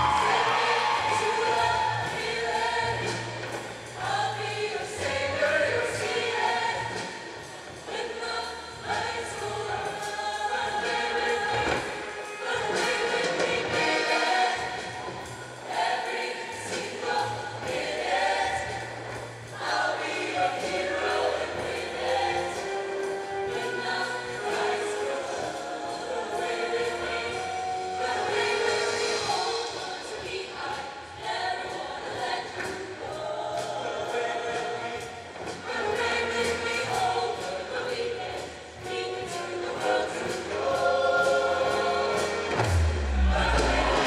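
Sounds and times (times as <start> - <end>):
bass line: 0.0 - 4.5, 42.3 - 44.0
choir singing in harmony: 0.0 - 44.0
live backing band: 0.0 - 44.0.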